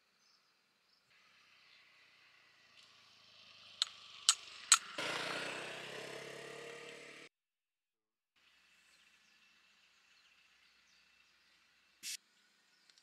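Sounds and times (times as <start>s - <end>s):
sharp metallic clicks: 3.8s - 5.0s.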